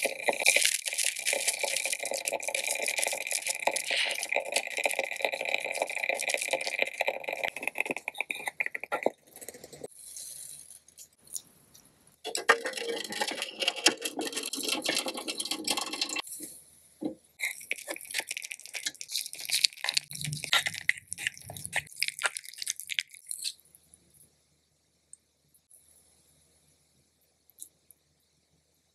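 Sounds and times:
water boiling: 0.0s - 9.9s, 12.3s - 23.5s
water pouring into sink: 12.3s - 16.3s.

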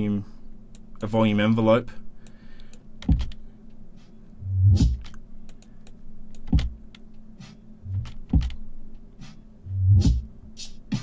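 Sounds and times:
drum break: 3.1s - 3.3s, 4.6s - 5.0s, 6.5s - 6.8s, 7.4s - 8.6s, 9.2s - 11.0s.

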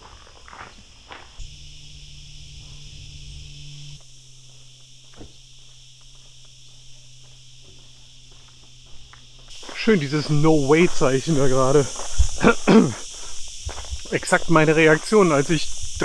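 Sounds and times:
cicadas buzzing: 0.0s - 16.0s
low steady hum: 1.4s - 14.0s.

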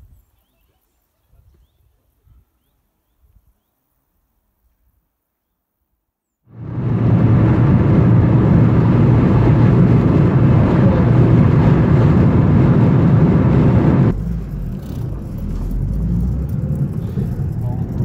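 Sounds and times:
road and wind noise: 6.5s - 18.0s
car cabin rumble: 6.6s - 18.0s.

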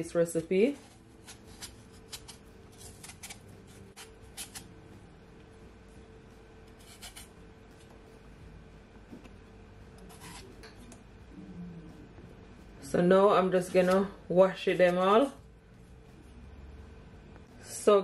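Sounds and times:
faint steady hum: 0.0s - 18.0s
knife scraping potato skin: 0.8s - 4.7s, 6.7s - 7.4s, 10.0s - 10.7s.

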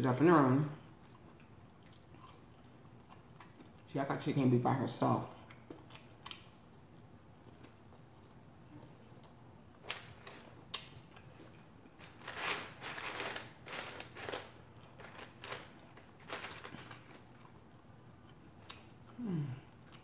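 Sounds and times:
paper crinkling and crackling: 12.0s - 17.5s.

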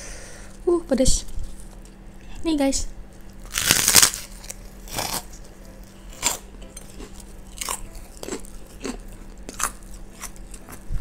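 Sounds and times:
crunchy eating of crackers: 3.2s - 11.0s.

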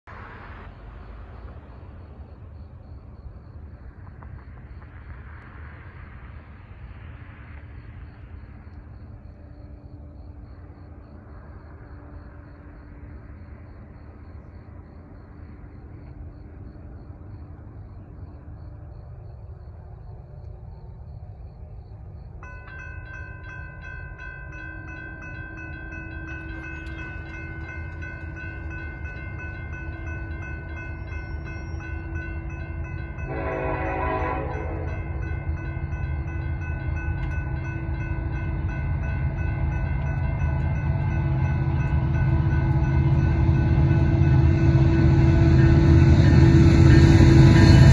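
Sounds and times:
crossing warning bells ringing: 21.2s - 47.9s
low rumble: 35.3s - 47.9s.

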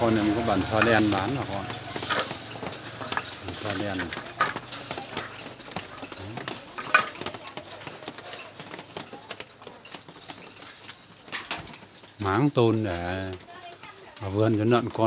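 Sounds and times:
faint voices: 0.0s - 10.2s
objects clicking and knocking: 0.0s - 15.0s.

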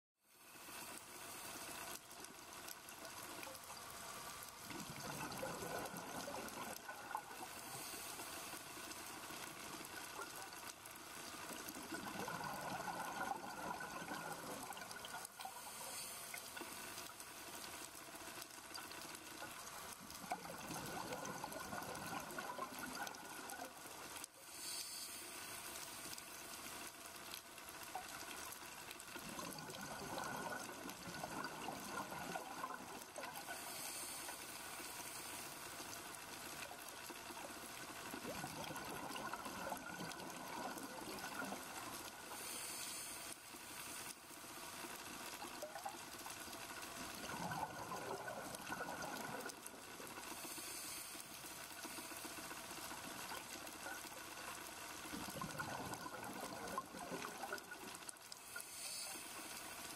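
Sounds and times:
exhaled bubbles underwater: 4.6s - 7.8s, 11.5s - 15.9s, 19.4s - 24.2s, 29.2s - 33.8s, 36.7s - 42.6s, 47.0s - 50.5s, 55.1s - 59.0s
scuba regulator inhalation hiss: 7.4s - 8.7s, 15.5s - 17.0s, 24.4s - 26.1s, 33.4s - 35.8s, 42.3s - 44.1s, 50.2s - 52.6s, 58.3s - 59.9s.

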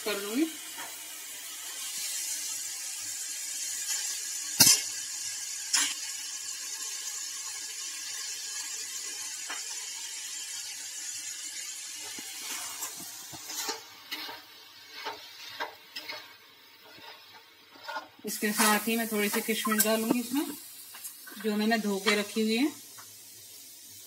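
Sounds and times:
hot oil sizzling: 0.0s - 24.0s
spatula scraping and stirring: 12.0s - 22.3s.

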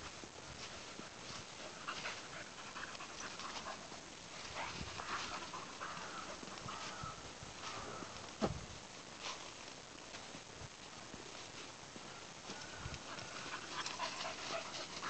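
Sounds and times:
rustling in dry leaves: 0.0s - 15.0s
dog panting: 0.6s - 6.7s, 13.0s - 15.0s.

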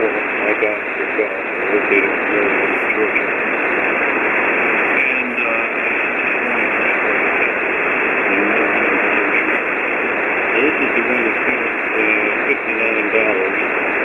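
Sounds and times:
faint garbled voice: 0.0s - 3.4s, 4.9s - 9.7s, 10.5s - 13.7s
radio receiver hiss: 0.0s - 14.0s.

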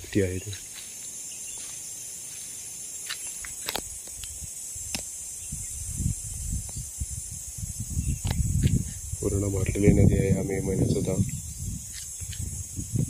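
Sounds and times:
insects buzzing: 0.0s - 13.0s
low rumbling on microphone: 5.4s - 13.0s.

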